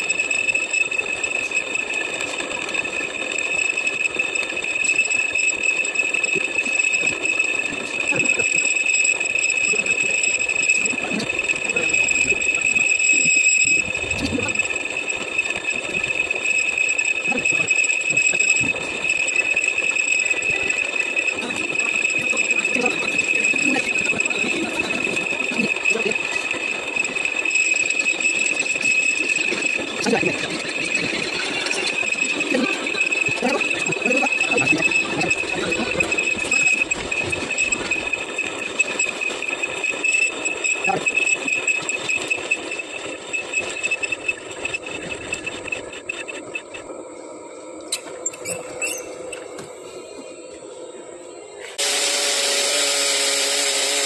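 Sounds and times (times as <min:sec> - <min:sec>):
machinery high whine: 0:00.0 - 0:54.0
mechanical hum: 0:00.0 - 0:54.0.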